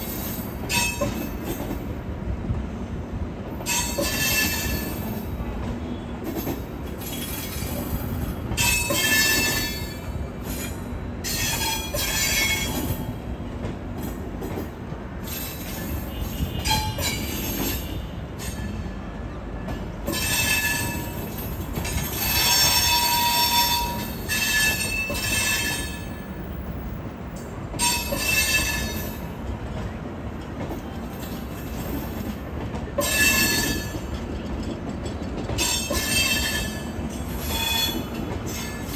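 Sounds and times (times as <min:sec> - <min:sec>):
train wheels rumbling on rails: 0:00.0 - 0:38.9
high-pitched wheel squeal: 0:35.7 - 0:38.8.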